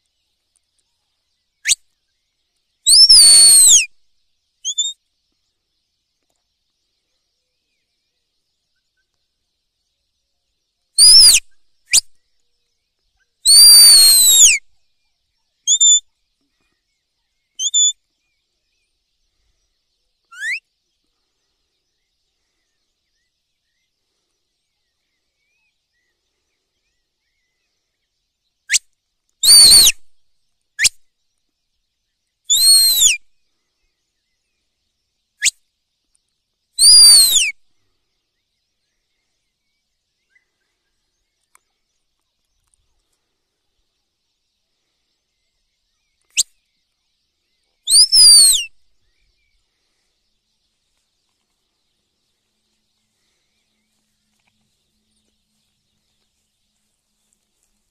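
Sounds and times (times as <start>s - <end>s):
high-pitched whistled calls: 2.8s - 4.0s, 4.6s - 5.0s, 11.0s - 12.1s, 13.4s - 14.7s, 15.7s - 16.0s, 17.6s - 18.0s, 20.3s - 20.6s, 29.4s - 30.1s, 32.5s - 33.2s, 36.8s - 37.6s, 47.8s - 49.3s
short chirps: 11.0s - 11.5s, 29.4s - 30.0s, 32.5s - 33.2s, 47.9s - 48.8s.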